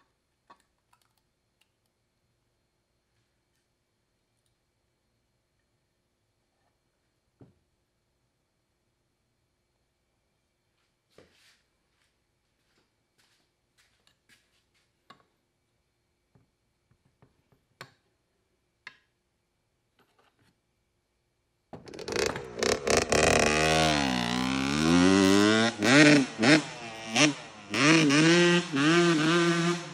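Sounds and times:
dirt bike engine revving: 21.9 - 29.9.

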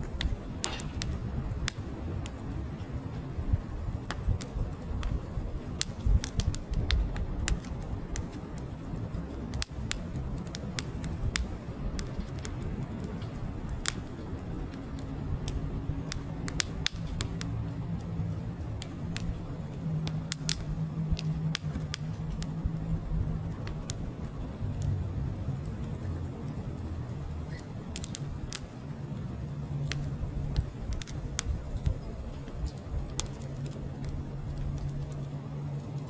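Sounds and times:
logs crackling and popping: 0.0 - 36.0
low rush of flames: 0.0 - 36.0.

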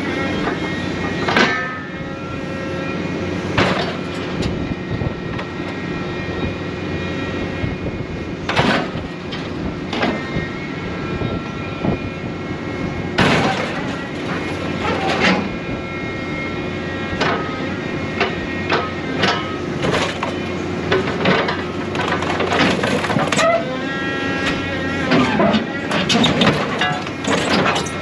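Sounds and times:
machine engine and hydraulics running: 0.0 - 28.0
metal clanks and crashes: 13.2 - 15.5, 25.1 - 28.0.

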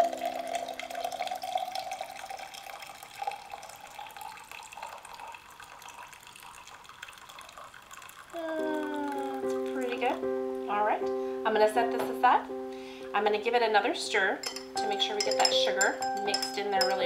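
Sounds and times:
coffee pouring into a glass mug: 0.0 - 10.2, 14.4 - 17.0.

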